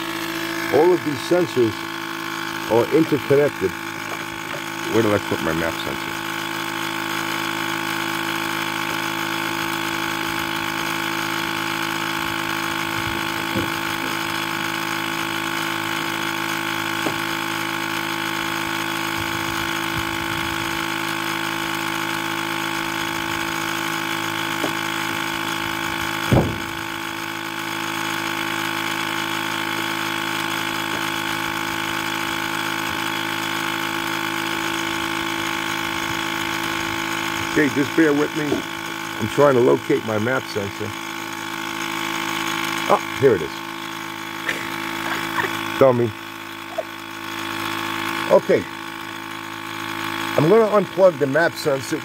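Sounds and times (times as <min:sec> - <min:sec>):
steady electrical buzz: 0:00.0 - 0:52.0
loud thump: 0:26.3 - 0:26.8.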